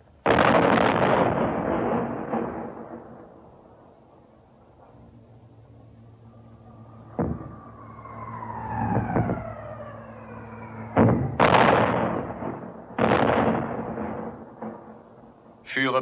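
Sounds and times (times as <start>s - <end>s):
explosions: 0.2s - 3.9s, 6.9s - 15.4s
falling bomb whistle: 6.8s - 12.2s.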